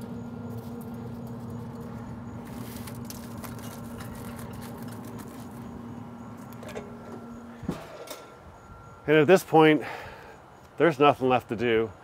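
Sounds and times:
smoker fan humming: 0:00.0 - 0:12.0
aluminium foil crinkling: 0:00.5 - 0:05.8.

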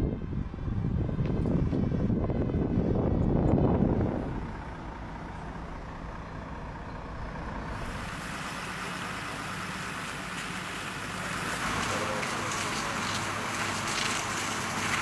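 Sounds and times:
heavy vehicle engines idling: 0:00.0 - 0:15.0
fire hose spraying water: 0:07.7 - 0:15.0.

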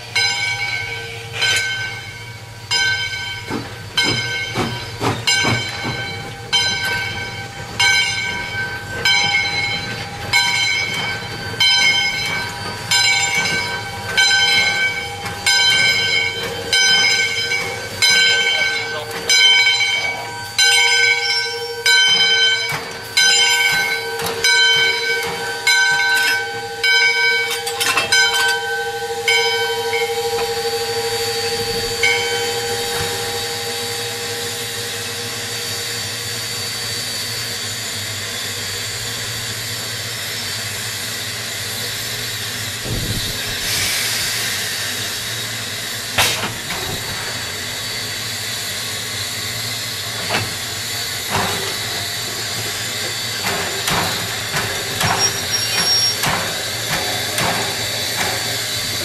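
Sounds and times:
steam hissing: 0:00.0 - 0:27.6, 0:28.6 - 0:59.0
rush of steam: 0:00.0 - 0:59.0
steady ringing tone: 0:05.4 - 0:36.2.

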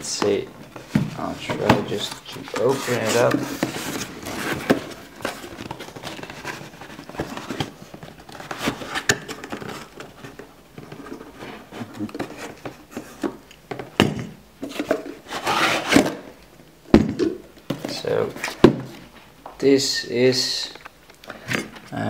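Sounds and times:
cardboard rustling and scraping: 0:00.2 - 0:13.4, 0:14.6 - 0:16.3.

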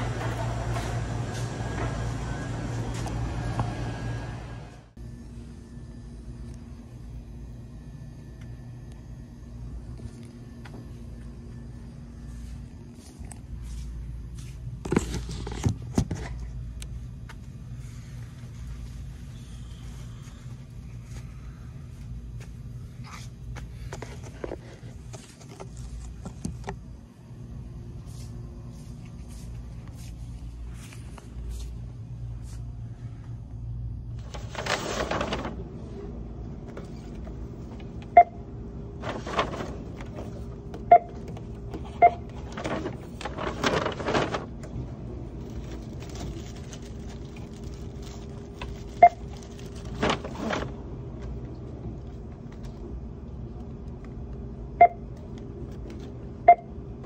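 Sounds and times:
low store hum: 0:00.0 - 0:57.0
paper rustling: 0:34.2 - 0:35.8, 0:39.0 - 0:40.6, 0:42.3 - 0:50.8
barcode scanner beeping: 0:38.1 - 0:38.4, 0:40.8 - 0:41.2, 0:41.9 - 0:42.3, 0:49.0 - 0:49.3.

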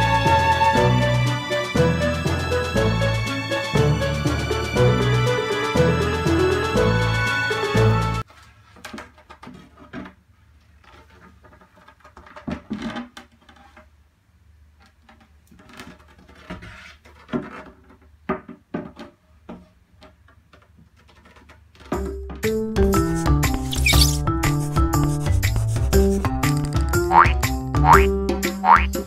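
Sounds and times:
background music: 0:00.0 - 0:08.2, 0:22.0 - 0:29.0
wooden board knocks and scrapes: 0:15.1 - 0:22.0, 0:22.8 - 0:27.3
handling knocks and scrapes: 0:22.8 - 0:27.2.

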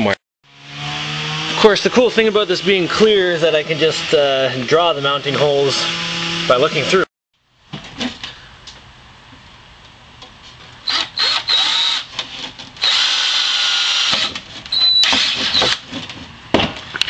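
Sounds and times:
power drill whining: 0:05.4 - 0:06.8, 0:10.8 - 0:12.2, 0:12.8 - 0:15.8.

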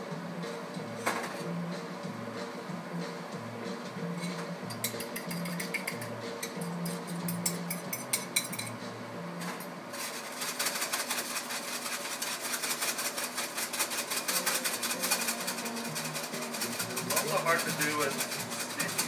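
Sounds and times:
utensil clicking against bowl: 0:04.7 - 0:08.7
utensil stirring eggs in pan: 0:09.9 - 0:19.0.

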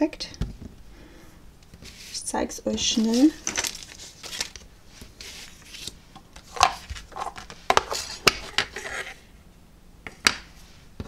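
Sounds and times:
paper sliding and rustling: 0:01.8 - 0:02.2, 0:03.0 - 0:09.2.

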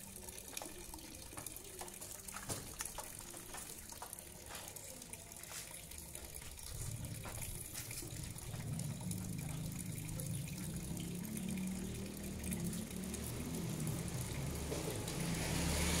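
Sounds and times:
low motor hum: 0:06.7 - 0:16.0.

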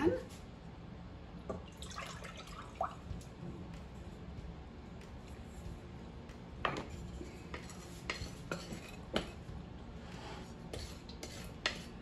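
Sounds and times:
spatula scraping glass bowl: 0:07.0 - 0:09.4, 0:10.3 - 0:11.9.

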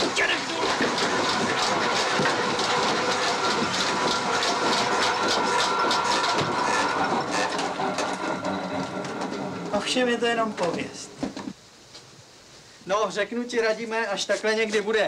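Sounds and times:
watermill machinery running: 0:00.0 - 0:11.6.

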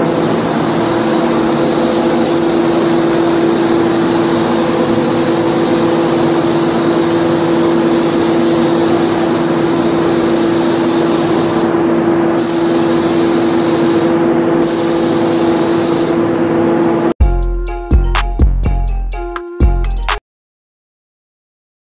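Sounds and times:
spray gun hissing: 0:00.0 - 0:11.8, 0:12.4 - 0:16.3
steady hum: 0:00.0 - 0:17.2.

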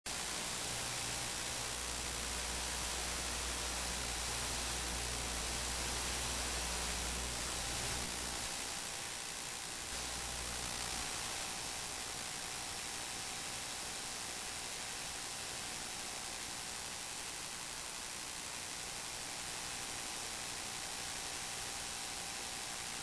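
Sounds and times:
static-like hiss: 0:00.1 - 0:17.6.

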